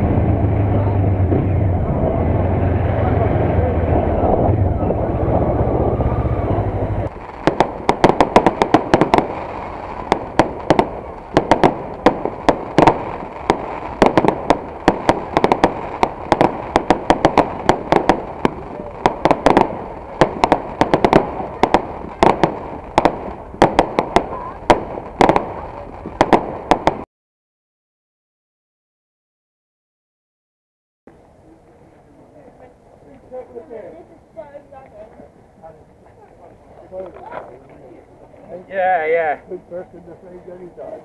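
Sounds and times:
fireworks cracks and bangs: 0:00.0 - 0:27.1.

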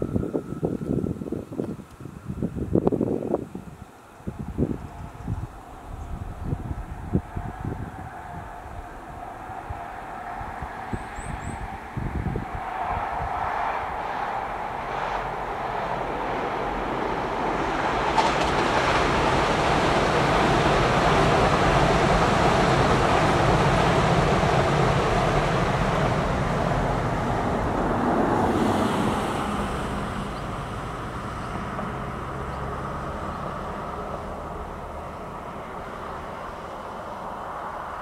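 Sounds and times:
high-speed train passing: 0:00.0 - 0:38.0.

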